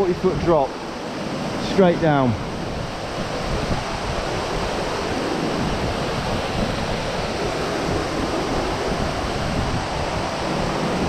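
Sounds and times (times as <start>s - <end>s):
waterfall rushing: 0.0s - 11.0s
wind buffeting microphone: 0.0s - 11.0s.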